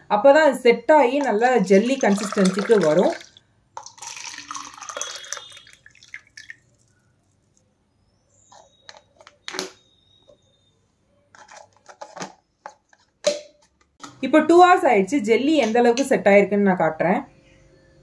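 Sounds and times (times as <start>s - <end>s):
liquid poured into cup: 1.2s - 7.6s.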